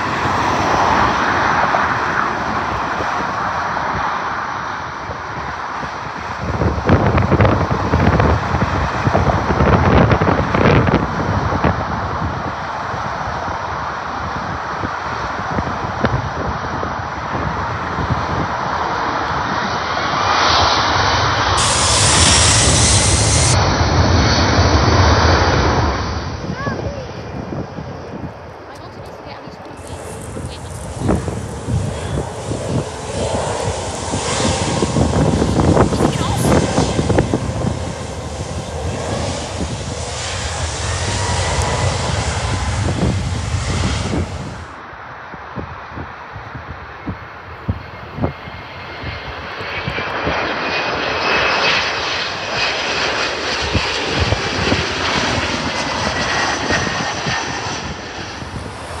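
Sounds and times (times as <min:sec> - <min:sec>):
jet engines rushing and rumbling: 0:00.0 - 0:59.0
faint rising jet whine: 0:18.5 - 0:27.2, 0:29.5 - 0:45.9, 0:47.2 - 0:59.0.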